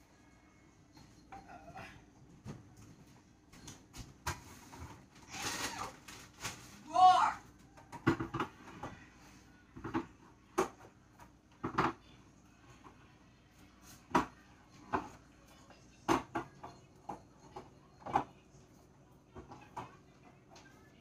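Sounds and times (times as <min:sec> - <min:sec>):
items knocking on shelves: 0:07.8 - 0:09.0.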